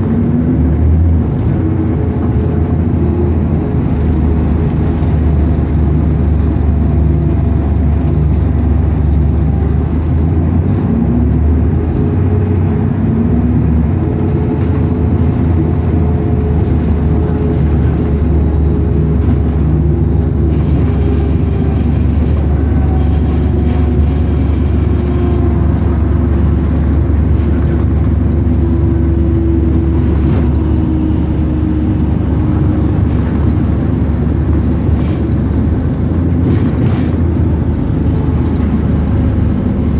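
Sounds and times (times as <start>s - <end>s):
bus engine and road rumble: 0.0s - 39.9s.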